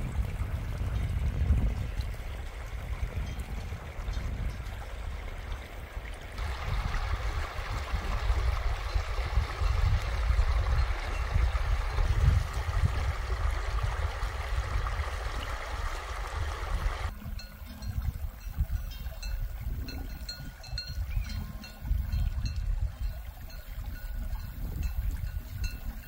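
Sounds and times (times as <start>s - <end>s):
stream trickling over pebbles: 0.0s - 26.0s.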